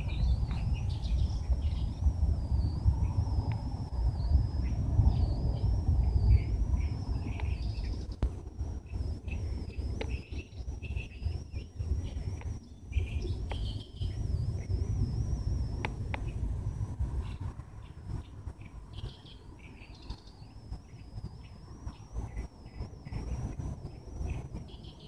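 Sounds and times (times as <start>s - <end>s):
small birds chirping: 0.0s - 16.5s, 17.1s - 25.0s
low rumble: 0.0s - 19.7s
insect trilling: 0.0s - 25.0s.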